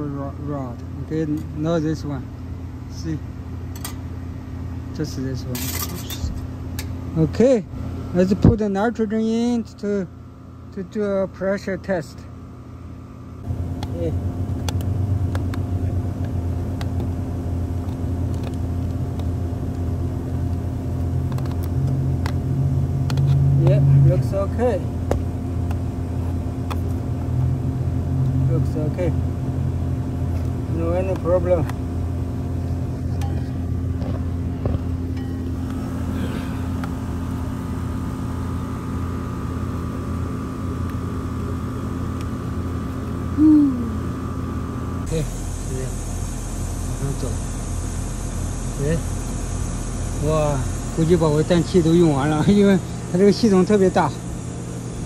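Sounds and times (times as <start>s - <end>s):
machine hum: 0.0s - 55.0s
high-pitched whine: 13.5s - 42.0s, 43.2s - 55.0s.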